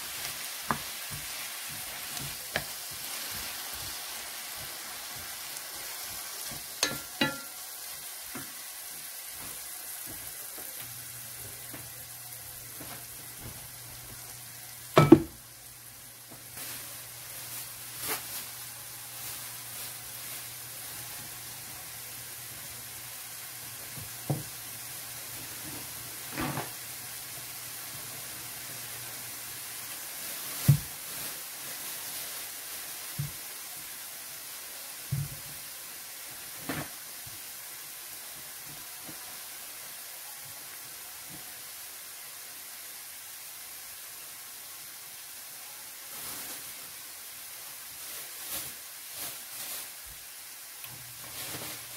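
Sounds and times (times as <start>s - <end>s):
vegetables sizzling in a frying pan: 0.0s - 51.9s
wooden spoon knocking on pan: 6.5s - 7.6s, 15.0s - 15.4s.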